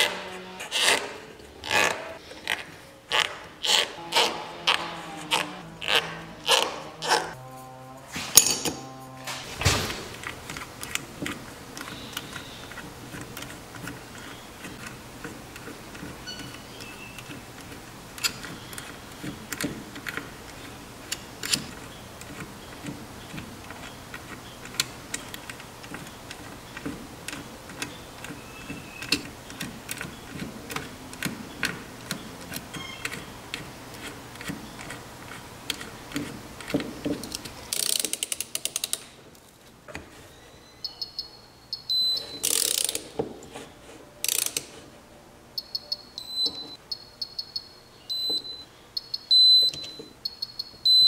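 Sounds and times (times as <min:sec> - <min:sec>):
low steady hum: 0:03.8 - 0:28.7
metal tools clicking and clanking: 0:08.2 - 0:39.1, 0:41.9 - 0:43.2, 0:44.2 - 0:44.8.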